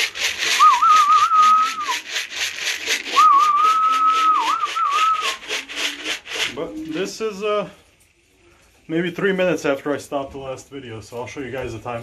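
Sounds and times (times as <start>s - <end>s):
fast even rattle: 0.0s - 3.6s
person whistling warbling call: 0.5s - 2.0s, 3.1s - 5.5s.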